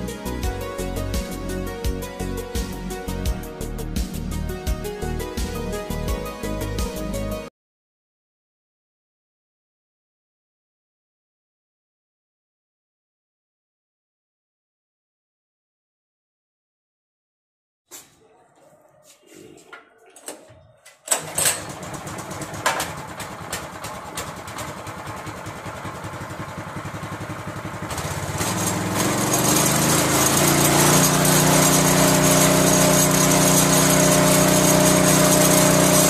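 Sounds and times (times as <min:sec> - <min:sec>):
small petrol engine revving: 0:21.2 - 0:36.0.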